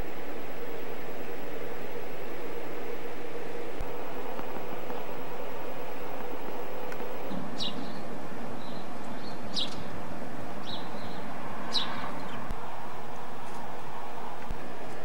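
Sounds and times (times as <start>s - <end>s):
background hiss: 0.0s - 9.0s
birds chirping: 0.0s - 9.9s.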